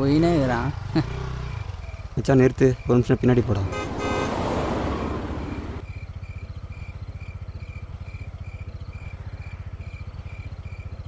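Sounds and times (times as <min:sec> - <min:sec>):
motorcycle engine idling: 0:00.0 - 0:03.4, 0:05.8 - 0:11.0
crickets chirping: 0:01.4 - 0:11.0
rush of noise: 0:03.4 - 0:05.8.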